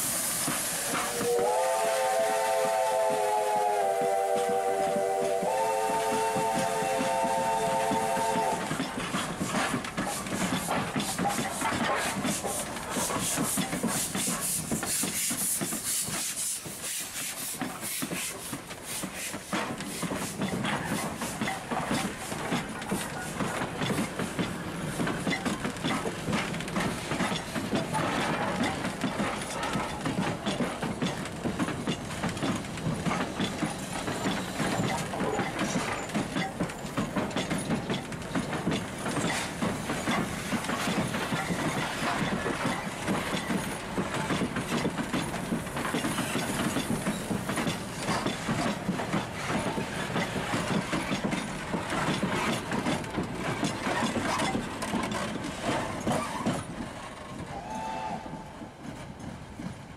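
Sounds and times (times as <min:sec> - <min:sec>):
steam hissing: 0:00.0 - 0:56.8
train wheels clicking over rails: 0:00.0 - 0:59.9.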